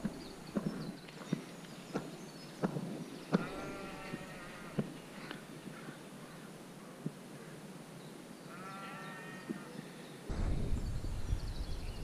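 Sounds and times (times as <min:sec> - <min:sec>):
sheep bleating: 0:03.4 - 0:04.9, 0:08.5 - 0:09.7
wind rumble on microphone: 0:10.3 - 0:12.0.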